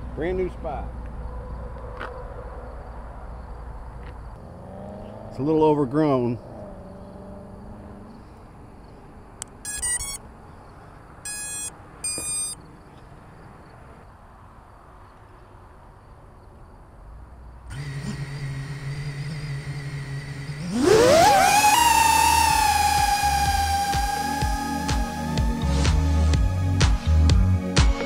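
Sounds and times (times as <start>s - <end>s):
short electronic beeps: 9.6s - 10.2s, 11.2s - 12.6s
drone motors whining: 17.7s - 25.8s.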